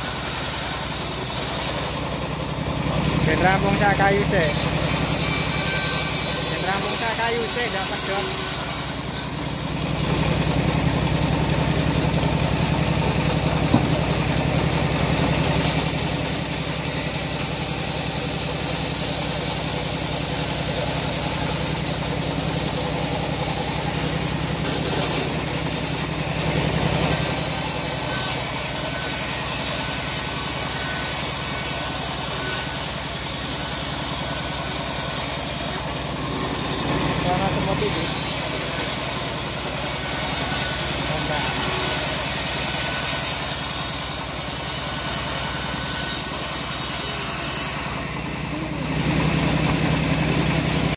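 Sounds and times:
bandsaw mill humming: 0.0s - 50.9s
saw blade ripping through wood: 13.5s - 26.4s, 27.0s - 47.9s.

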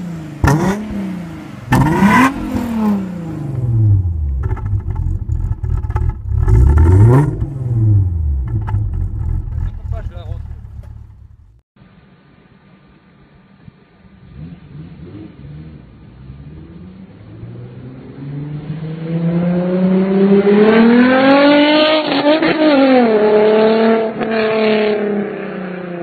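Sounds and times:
car engine accelerating past: 14.2s - 26.0s.

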